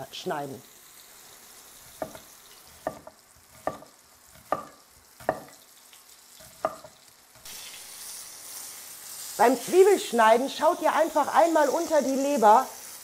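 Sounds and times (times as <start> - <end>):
liver sizzling in a pan: 0.0 - 13.0
knife chopping on plastic board: 2.8 - 5.6.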